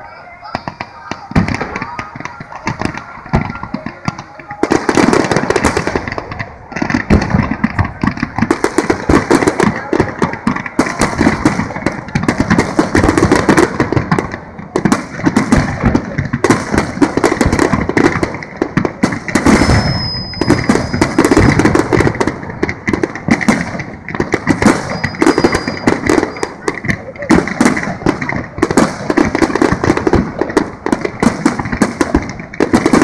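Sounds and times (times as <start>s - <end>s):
fireworks bursting and crackling: 0.0s - 33.0s.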